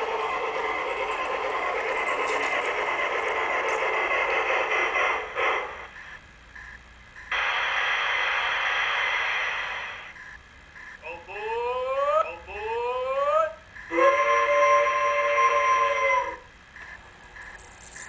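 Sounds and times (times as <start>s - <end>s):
model train rattling and whirring: 0.0s - 6.0s.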